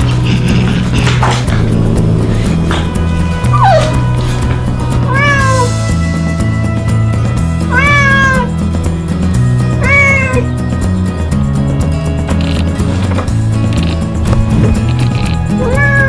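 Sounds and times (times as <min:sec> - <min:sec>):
cat meowing: 0:01.6 - 0:04.2, 0:05.0 - 0:05.8, 0:07.7 - 0:08.5, 0:09.8 - 0:10.5, 0:15.5 - 0:16.0.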